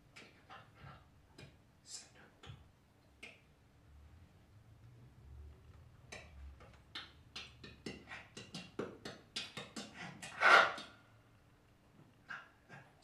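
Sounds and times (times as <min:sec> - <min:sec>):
man making breathy vocal sounds: 0:09.4 - 0:10.8.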